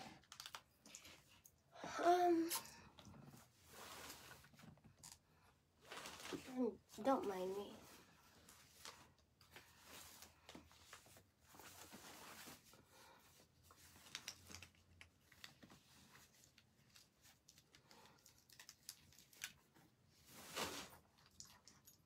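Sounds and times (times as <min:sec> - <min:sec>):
clothing rustling: 0:03.2 - 0:04.9, 0:05.7 - 0:14.6, 0:20.0 - 0:21.4.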